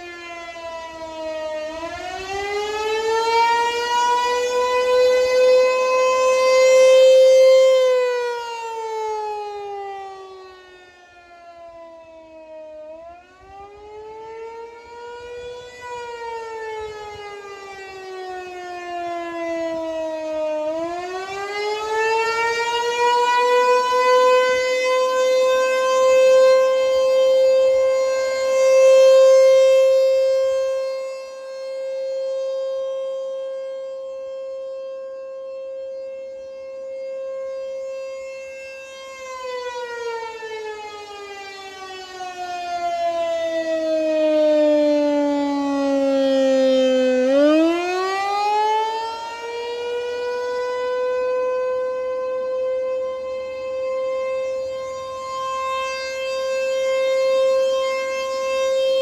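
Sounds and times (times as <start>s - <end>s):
warning siren wailing: 0.0s - 59.0s.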